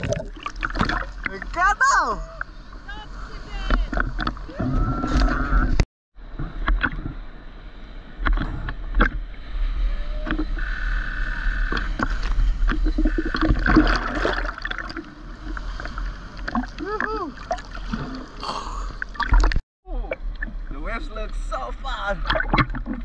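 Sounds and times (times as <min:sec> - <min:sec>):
low rumble of surf: 0:01.2 - 0:11.6
water splashing against camera: 0:22.2 - 0:23.0.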